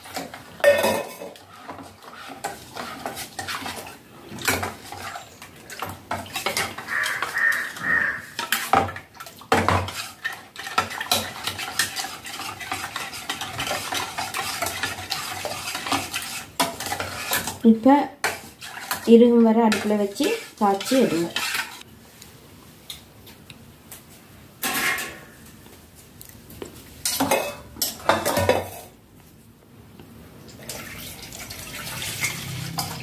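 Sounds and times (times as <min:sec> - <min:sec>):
spoon stirring in metal saucepan: 0:00.0 - 0:21.8.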